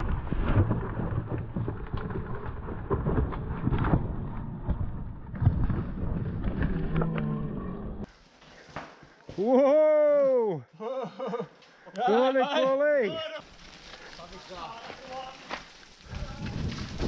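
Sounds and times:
bike knocking and rattling: 0:13.4 - 0:17.0
wind buffeting microphone: 0:16.0 - 0:17.0.

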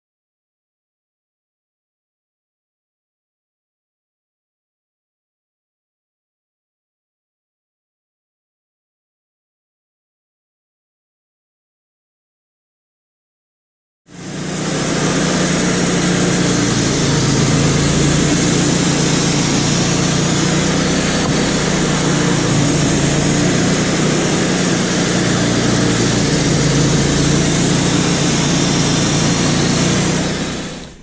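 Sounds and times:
band sawmill cutting log: 0:14.1 - 0:31.0.

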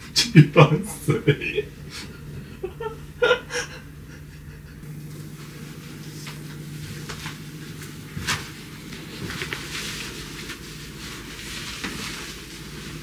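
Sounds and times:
fabric rustling: 0:05.2 - 0:13.0.

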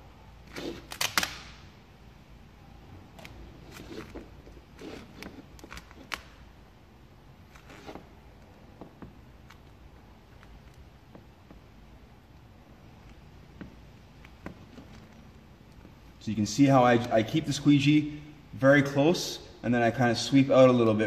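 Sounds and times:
squeegee scraping: 0:00.4 - 0:01.2, 0:03.2 - 0:06.4, 0:07.5 - 0:11.7
vinyl film crackling and snapping: 0:00.6 - 0:01.7, 0:04.8 - 0:06.5.

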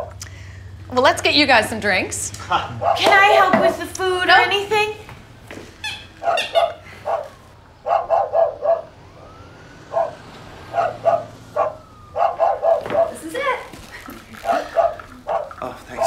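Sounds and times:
dog barking: 0:02.7 - 0:03.2, 0:06.2 - 0:09.0, 0:09.9 - 0:13.2, 0:14.4 - 0:16.0.

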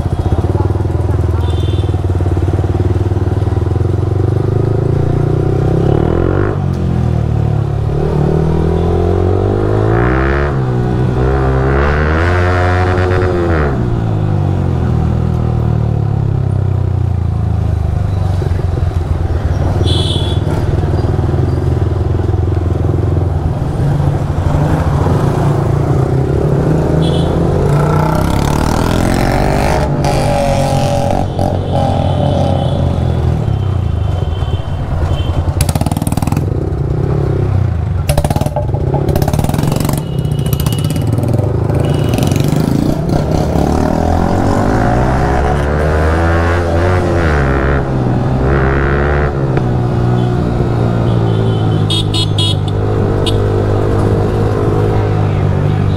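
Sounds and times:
motorcycle exhaust note: 0:35.4 - 0:50.3.

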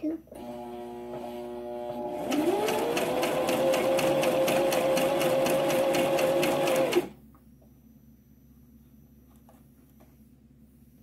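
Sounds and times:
sewing machine stitching: 0:00.4 - 0:07.2.

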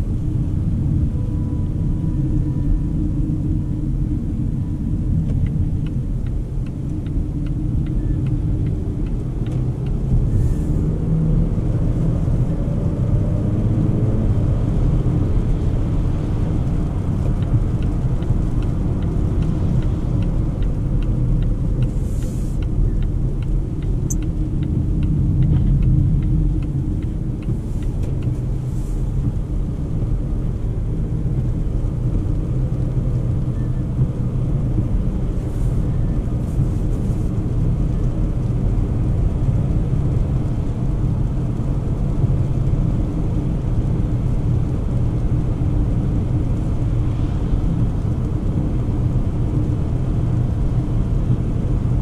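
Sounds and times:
car engine and tyre rumble: 0:00.0 - 0:52.0
faint regular ticking: 0:17.4 - 0:28.4.

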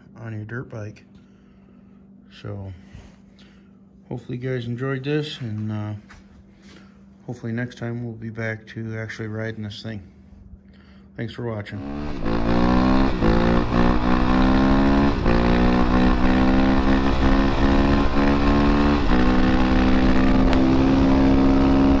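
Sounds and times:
motorcycle engine accelerating: 0:11.7 - 0:22.0.

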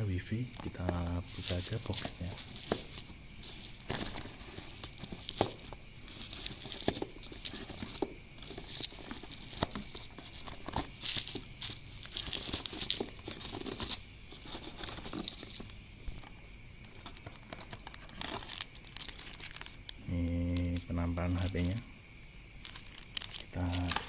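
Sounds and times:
fingers scraping cardboard box: 0:01.9 - 0:15.7.

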